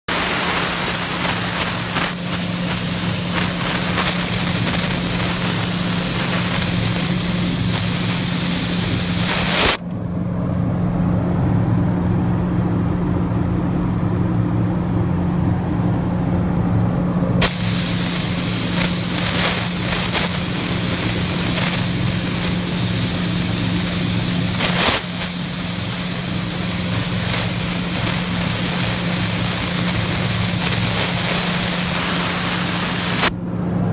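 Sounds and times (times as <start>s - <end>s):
air hissing: 0.0s - 9.8s, 17.4s - 33.4s.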